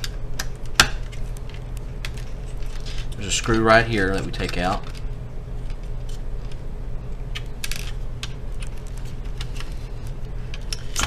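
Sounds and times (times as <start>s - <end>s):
low background hum: 0.0s - 11.0s.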